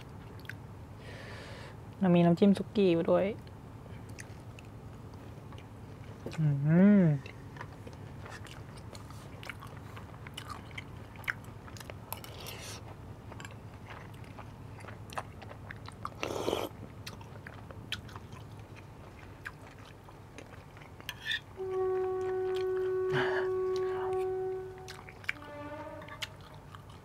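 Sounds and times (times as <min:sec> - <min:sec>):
person chewing: 0:04.0 - 0:06.5, 0:07.2 - 0:27.0
loud steady tone: 0:21.6 - 0:26.4.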